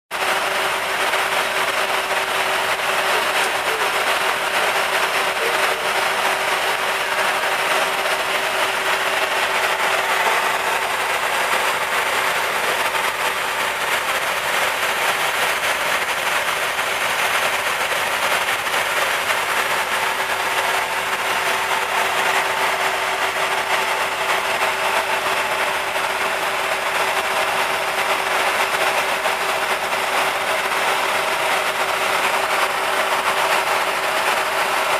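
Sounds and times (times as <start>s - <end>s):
constant engine hum: 0.1s - 34.9s.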